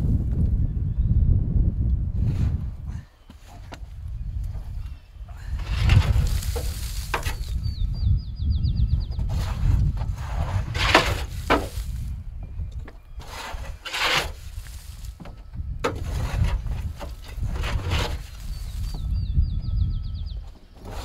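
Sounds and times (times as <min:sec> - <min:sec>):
dry branches rustling and scraping: 0:03.3 - 0:07.9, 0:09.1 - 0:19.2, 0:20.4 - 0:21.0
bird chirping rapidly: 0:07.3 - 0:09.3.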